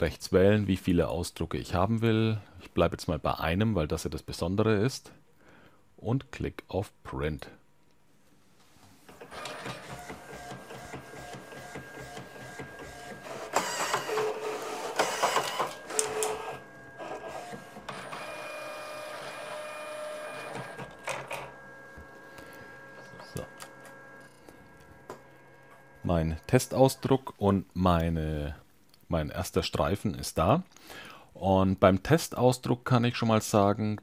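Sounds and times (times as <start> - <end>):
printer clicks: 9.1 - 21.6
printer motors whirring: 9.1 - 27.3.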